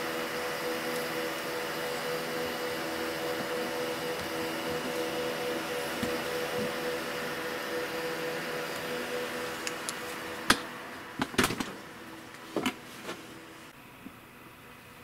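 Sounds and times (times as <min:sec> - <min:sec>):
background music with held tones: 0:00.0 - 0:11.2.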